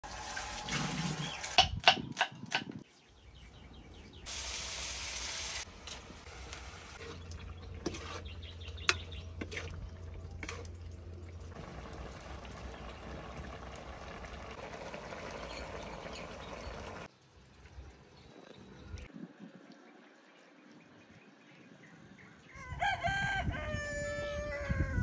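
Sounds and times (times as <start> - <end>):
running water: 4.3 - 18.8.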